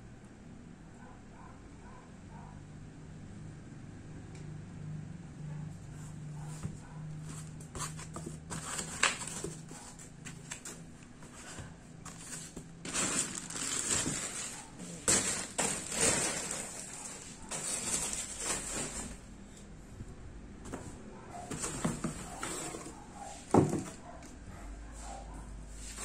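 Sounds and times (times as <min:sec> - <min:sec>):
plastic wrapping crinkling: 0:12.1 - 0:19.2.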